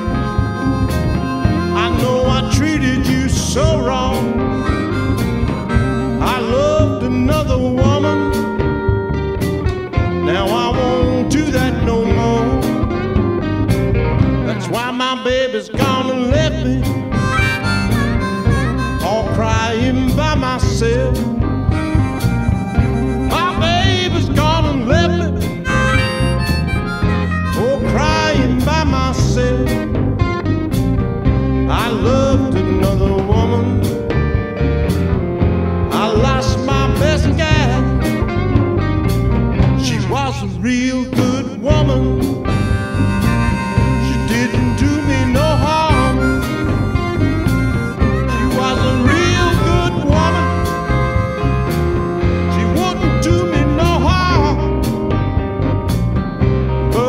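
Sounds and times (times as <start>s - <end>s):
harmonica solo: 0.0s - 11.2s, 16.9s - 29.6s, 42.2s - 55.1s
bass guitar: 0.0s - 57.0s
bent sliding lead guitar notes: 0.0s - 57.0s
drums with steady beat: 0.0s - 57.0s
electric blues band: 0.0s - 57.0s.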